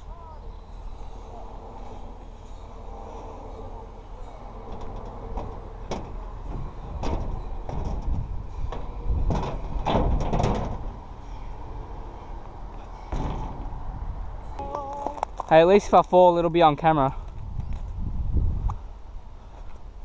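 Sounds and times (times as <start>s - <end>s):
sheet metal clanking: 0.0s - 14.5s
steady low rumble: 0.0s - 20.0s.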